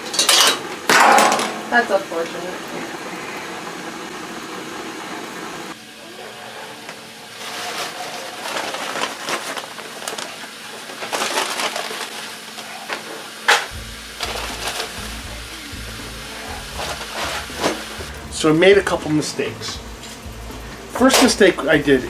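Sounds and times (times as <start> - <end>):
butter and oil sizzling: 0.0 - 6.0, 13.2 - 22.0.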